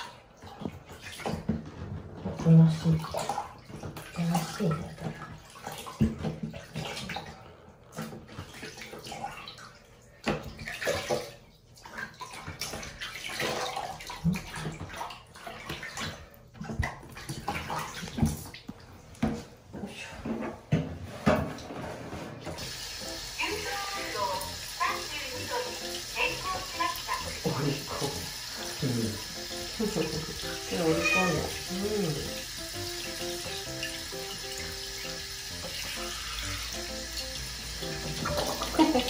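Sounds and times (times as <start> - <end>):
water splashing in a plastic basin: 0.0 - 19.5, 22.5 - 39.0.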